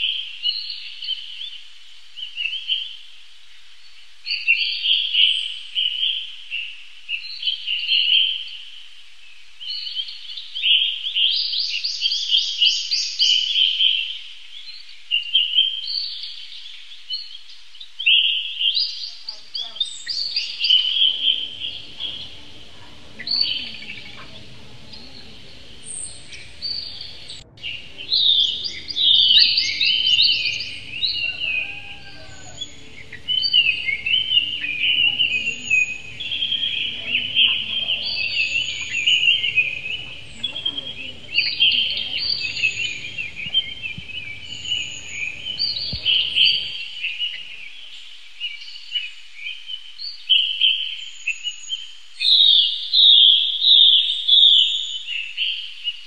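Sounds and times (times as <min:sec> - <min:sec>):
birds chirping shrilly: 0:18.1 - 0:47.9
faint low rumble: 0:20.5 - 0:46.8.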